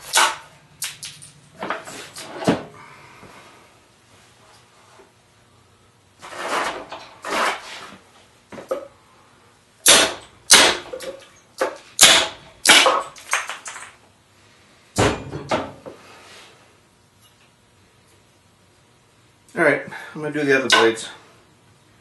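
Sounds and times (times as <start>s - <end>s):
sledgehammer striking machete blade: 0.0s - 0.5s, 9.8s - 11.0s, 12.0s - 13.0s.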